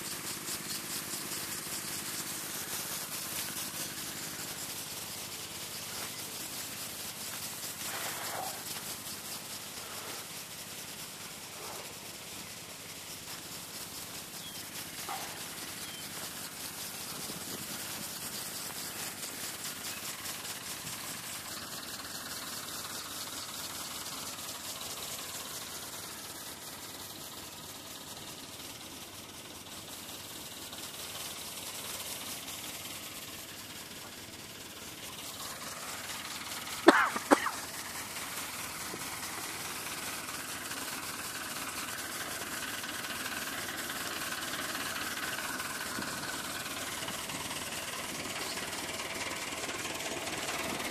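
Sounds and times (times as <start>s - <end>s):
constant hiss: 0.0s - 50.9s
tractor engine running: 0.0s - 50.9s
sharp loud noises: 36.9s - 37.7s.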